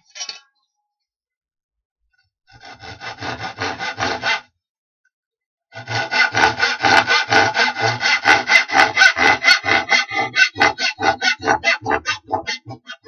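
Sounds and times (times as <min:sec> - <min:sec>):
hand saw cutting wood: 0:02.5 - 0:04.5, 0:05.7 - 0:13.0.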